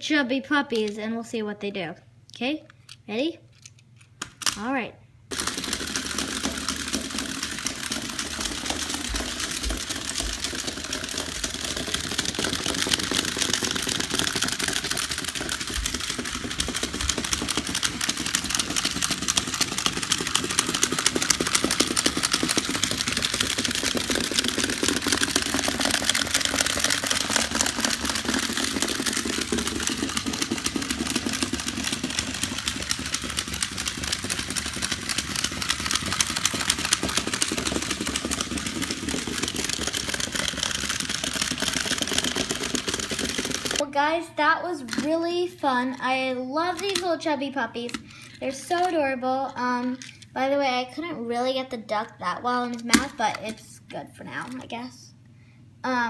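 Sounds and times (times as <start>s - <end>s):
fast plastic clicking: 5.3s - 43.8s, 46.6s - 47.2s, 52.0s - 53.6s
small motors whirring: 5.3s - 43.8s.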